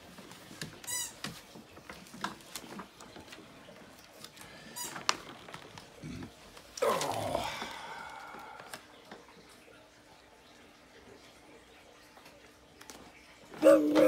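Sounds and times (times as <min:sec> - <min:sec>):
paper clicks and rustles: 0:00.0 - 0:07.2.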